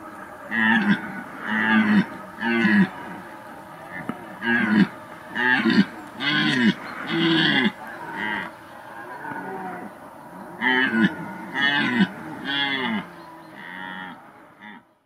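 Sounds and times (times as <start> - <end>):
red deer stag roaring: 0.3 - 14.8.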